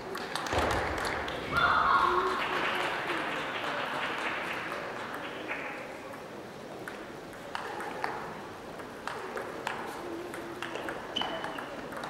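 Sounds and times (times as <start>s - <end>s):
crowd applause: 0.8s - 6.0s.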